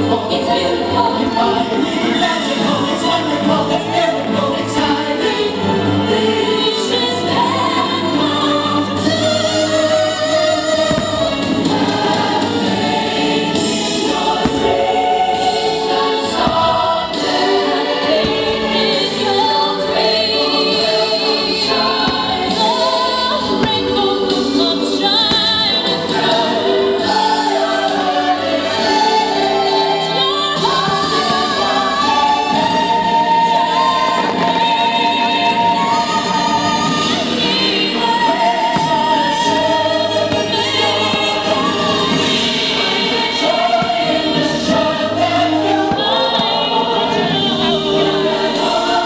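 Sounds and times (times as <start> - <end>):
choir singing held notes: 0.0 - 49.0.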